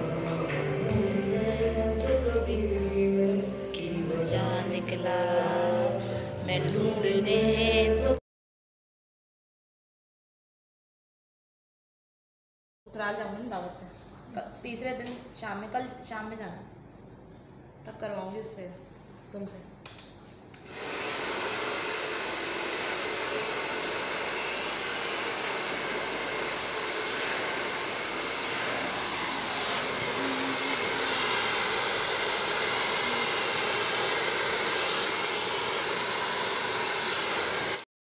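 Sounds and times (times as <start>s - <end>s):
hair dryer blowing: 20.6s - 37.9s.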